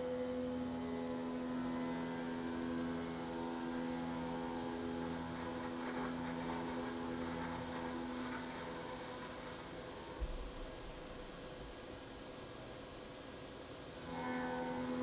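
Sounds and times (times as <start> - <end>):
milling machine spindle humming: 0.2 - 15.0.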